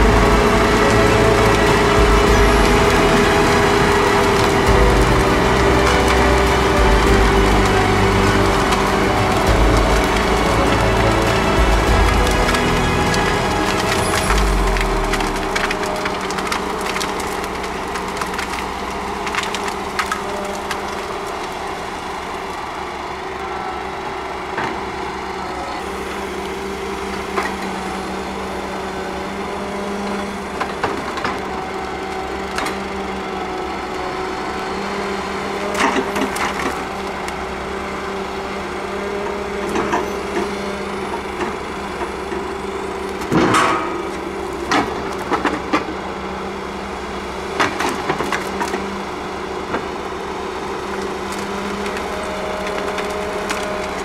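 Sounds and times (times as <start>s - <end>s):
logs knocking and clunking: 0.0s - 21.6s
diesel engine running: 0.0s - 54.0s.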